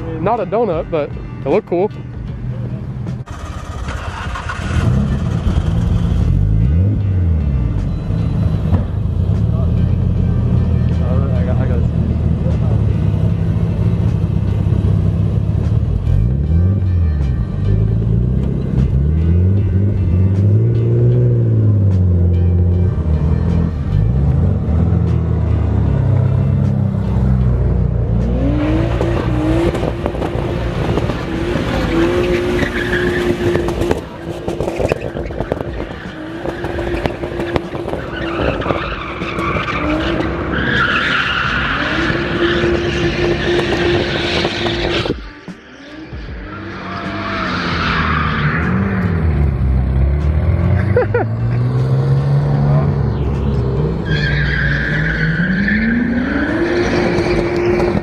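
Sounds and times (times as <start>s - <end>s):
car engine revving high: 17.7s - 58.0s
tyres squealing: 31.7s - 44.9s, 53.8s - 57.4s.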